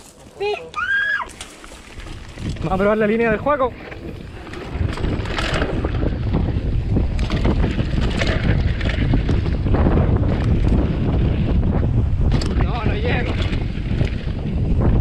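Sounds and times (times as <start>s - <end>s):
bike tyres rolling on dirt: 0.0s - 15.0s
wind buffeting microphone: 1.1s - 15.0s
bike clattering over bumps: 1.2s - 15.0s.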